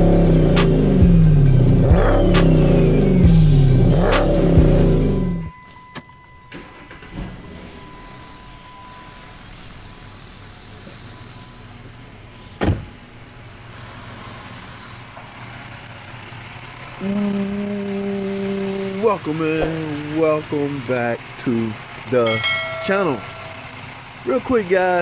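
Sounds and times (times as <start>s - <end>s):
car engine idling: 0.0s - 5.5s, 6.5s - 25.0s
car door shutting: 12.5s - 13.0s
steady pitched hum: 16.9s - 24.3s.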